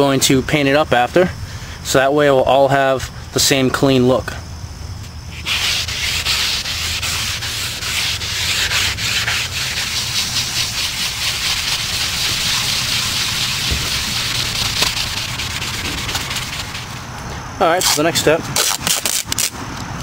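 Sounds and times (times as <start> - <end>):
hand sanding scratchy rubbing: 5.3 - 17.1.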